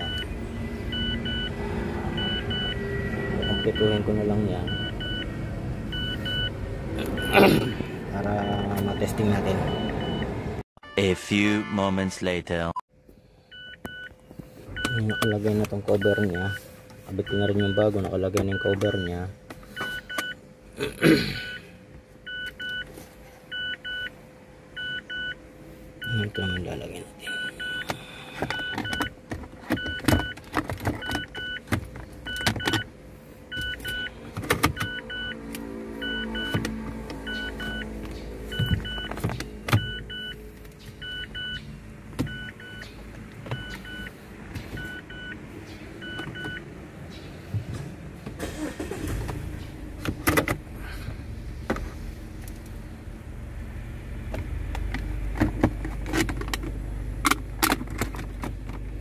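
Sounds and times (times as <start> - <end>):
car warning chime beeping: 0.0 - 5.3, 5.9 - 10.4, 13.5 - 20.4, 21.5 - 22.9, 23.5 - 25.4, 26.0 - 29.2, 29.8 - 30.4, 31.0 - 32.9, 33.5 - 35.4, 36.0 - 40.4, 41.0 - 45.4, 46.0 - 46.7, 48.4 - 49.2.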